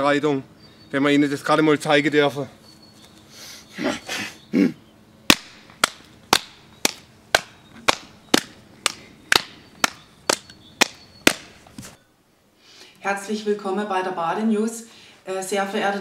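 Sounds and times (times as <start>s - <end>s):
hand-clapping game slaps: 5.3s - 11.5s.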